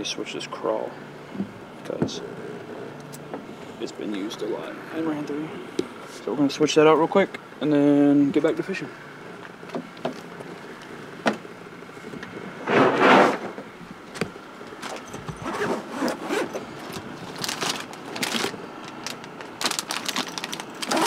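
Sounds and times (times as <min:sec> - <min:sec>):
loud rushing scrape: 0:12.6 - 0:13.6.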